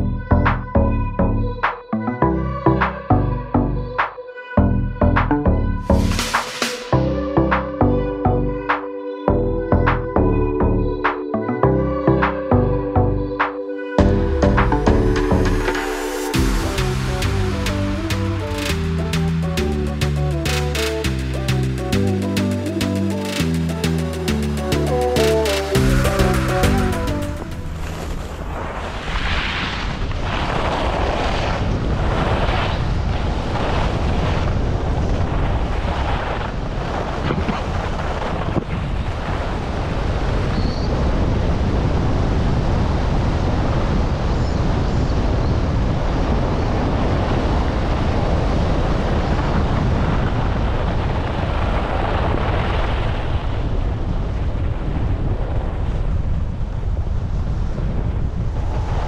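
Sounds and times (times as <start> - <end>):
wind buffeting microphone: 27.6 - 59.0.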